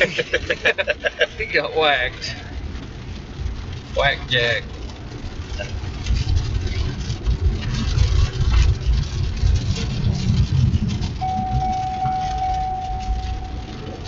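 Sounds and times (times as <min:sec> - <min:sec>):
road and wind rumble: 0:00.0 - 0:14.0
steady electronic tone: 0:11.2 - 0:14.0.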